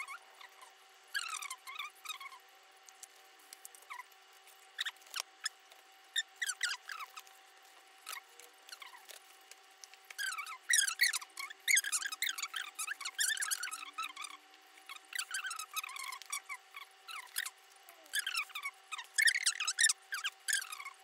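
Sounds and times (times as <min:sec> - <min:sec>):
high squeaky chirps: 0:00.0 - 0:02.4, 0:04.8 - 0:07.3, 0:10.1 - 0:21.0
faint steady hum: 0:00.0 - 0:21.0.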